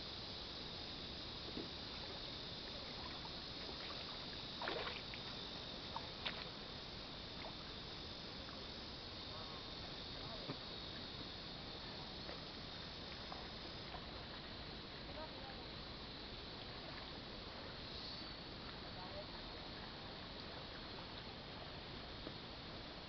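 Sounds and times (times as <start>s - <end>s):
steady high hiss: 0.0s - 23.0s
water splashing: 2.8s - 6.7s
small sharp ticks: 3.8s - 6.6s.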